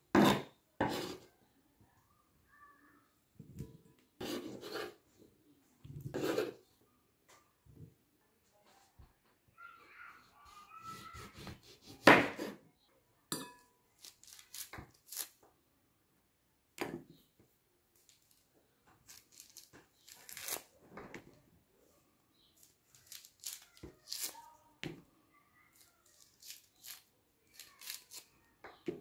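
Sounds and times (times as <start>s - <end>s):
peel tearing: 14.0s - 15.4s, 19.1s - 20.7s, 22.6s - 24.5s, 25.8s - 28.3s
knife cutting orange peel: 23.0s - 24.5s, 26.1s - 28.3s.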